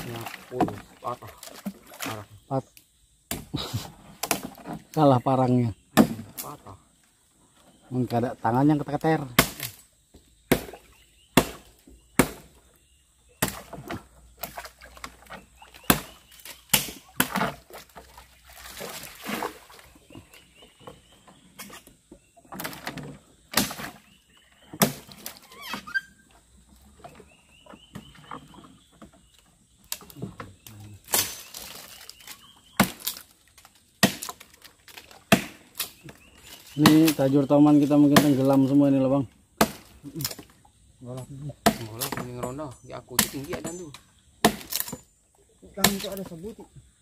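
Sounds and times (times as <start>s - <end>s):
blade chopping dead wood: 5.9s - 6.4s, 9.3s - 9.8s, 10.5s - 12.6s, 13.4s - 14.6s, 15.8s - 17.6s, 23.5s - 24.0s, 24.7s - 25.3s, 31.0s - 31.9s, 32.7s - 33.3s, 33.9s - 37.3s, 37.9s - 38.6s, 39.6s - 40.4s, 41.6s - 42.4s, 43.1s - 43.8s, 44.4s - 45.0s, 45.8s - 46.2s
bird chirping: 10.0s - 17.2s, 19.7s - 33.4s, 35.8s - 47.0s.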